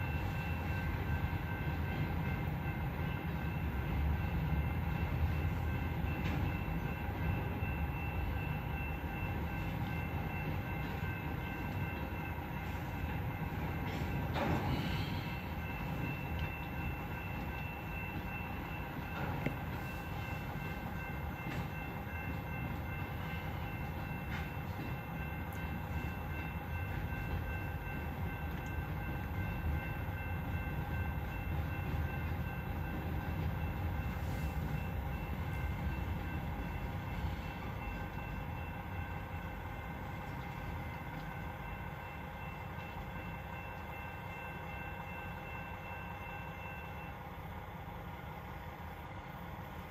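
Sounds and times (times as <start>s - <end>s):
freight train rolling: 0.0s - 49.9s
railroad crossing bell ringing: 0.0s - 49.9s.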